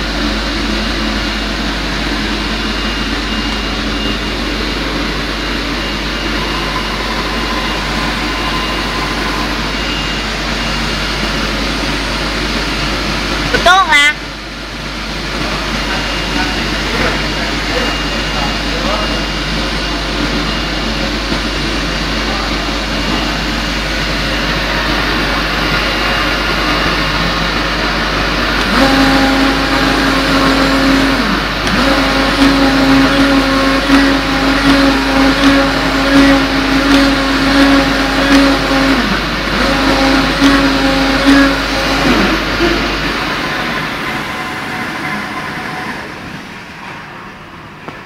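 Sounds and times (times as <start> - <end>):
steady rushing noise: 3.4 - 13.0.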